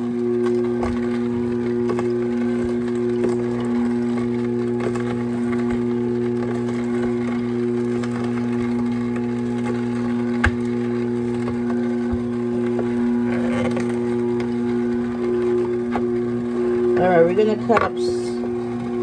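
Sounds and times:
juicer motor hum: 0:00.0 - 0:19.0.

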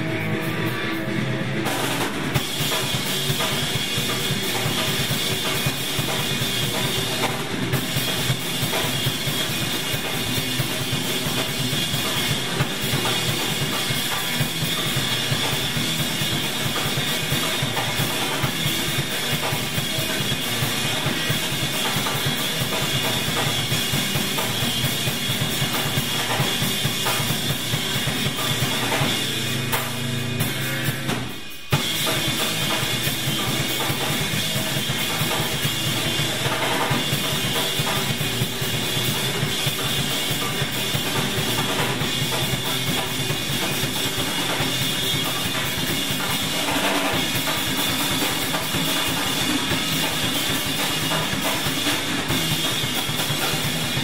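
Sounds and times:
music with drum beat: 0:00.0 - 0:54.0.

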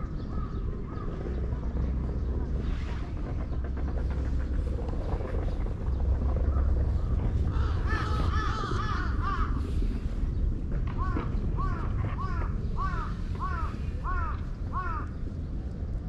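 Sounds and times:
crow cawing: 0:07.5 - 0:09.6, 0:11.0 - 0:15.2.

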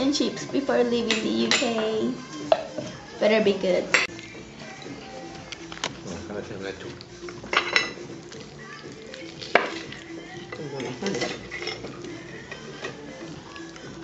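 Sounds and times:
faint background music: 0:00.0 - 0:14.0
cutlery clinking and scraping on plate: 0:07.2 - 0:08.1, 0:09.5 - 0:13.1.

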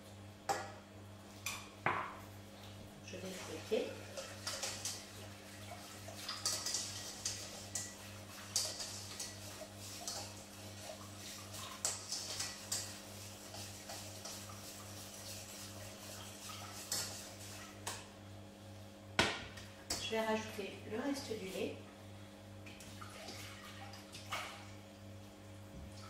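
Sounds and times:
low steady hum: 0:00.0 - 0:26.0
whisk scraping a metal saucepan: 0:04.0 - 0:17.6.

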